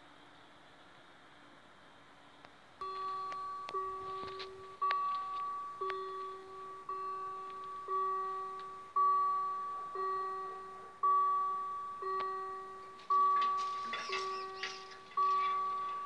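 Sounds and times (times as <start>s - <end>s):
level crossing warning bell: 2.8s - 16.0s.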